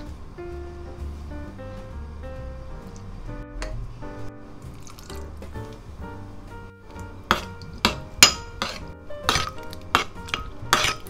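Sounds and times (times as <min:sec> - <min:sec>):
metal spoon stirring in ceramic bowl: 0:07.3 - 0:11.0.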